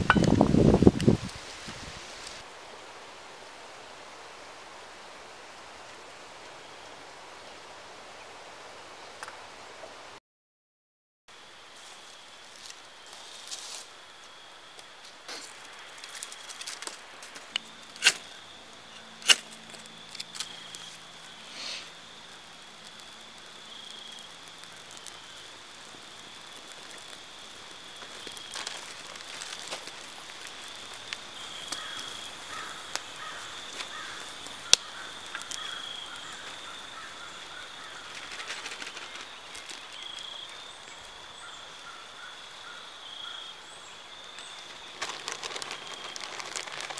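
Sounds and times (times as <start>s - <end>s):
leaf rustling: 0.0s - 2.6s, 11.7s - 42.0s, 43.8s - 46.9s
campfire crackling: 0.0s - 8.0s, 11.7s - 42.6s, 43.8s - 46.9s
dry sticks snapping: 15.3s - 18.3s, 19.0s - 21.0s, 28.0s - 36.6s.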